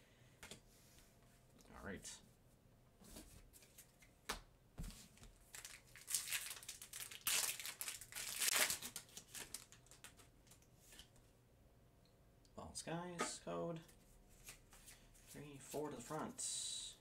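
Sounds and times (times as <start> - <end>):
foil wrapper tearing and crinkling: 5.5 - 10.3.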